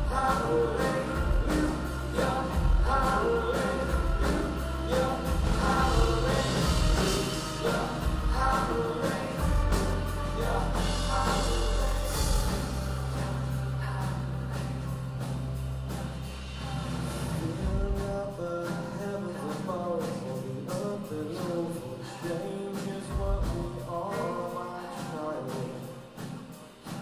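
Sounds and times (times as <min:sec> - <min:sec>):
song with singing over a beat: 0:00.0 - 0:27.0.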